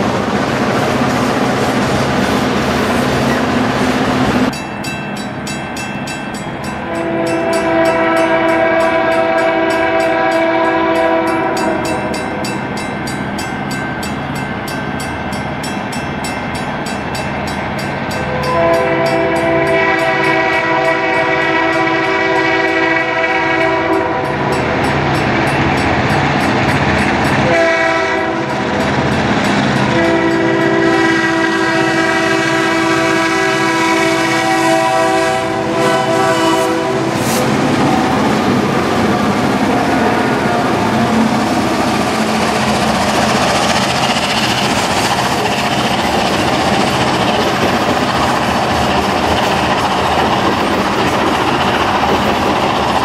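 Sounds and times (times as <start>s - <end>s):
crossing bell ringing: 4.5s - 22.0s, 23.9s - 27.6s, 28.2s - 30.9s
locomotive chime horn blasts: 6.6s - 13.0s, 18.1s - 24.9s, 27.4s - 28.8s, 29.8s - 37.2s.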